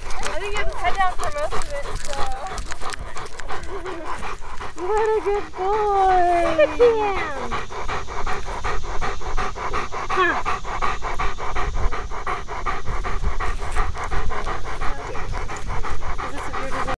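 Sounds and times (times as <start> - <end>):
dog panting rapidly: 0.0 - 17.0.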